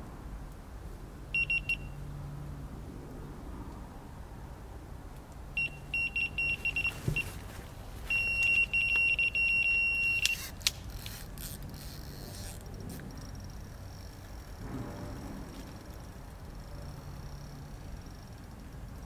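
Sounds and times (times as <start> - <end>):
bite alarm beeping: 1.4 - 2.0, 5.6 - 7.4, 8.1 - 10.6
continuous high alarm tone: 1.4 - 2.0, 5.6 - 7.4, 8.0 - 10.5, 12.9 - 19.0.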